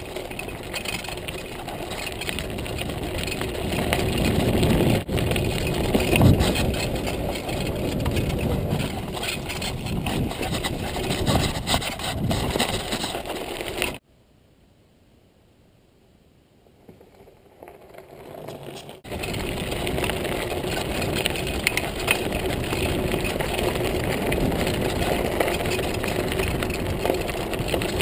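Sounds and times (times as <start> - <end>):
bike rattling: 0.0 - 14.0, 16.8 - 28.0
bike tyres rumbling on gravel: 0.0 - 14.0, 16.7 - 28.0
wind on microphone: 0.0 - 14.0, 19.0 - 28.0.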